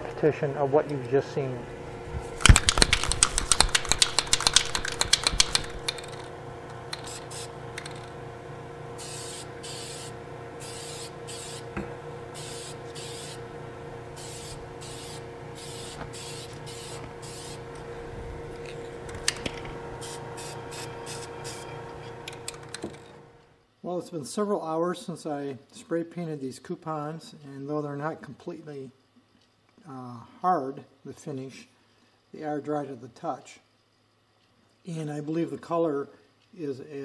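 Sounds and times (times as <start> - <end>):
exhaust fan hum: 0.0 - 23.6
spray can ball rattling: 2.4 - 6.3, 6.9 - 8.1
spray paint hissing bursts: 6.9 - 7.6, 9.0 - 11.7, 12.3 - 13.4, 14.2 - 17.7, 20.0 - 21.6.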